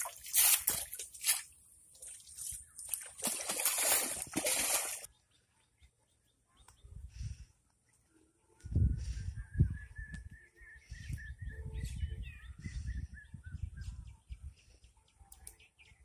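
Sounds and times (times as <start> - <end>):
muddy water splashing: 0.0 - 5.1.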